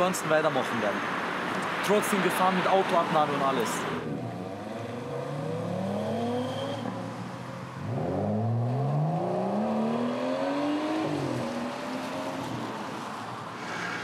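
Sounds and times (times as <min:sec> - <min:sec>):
car engine accelerating: 0:04.0 - 0:13.0.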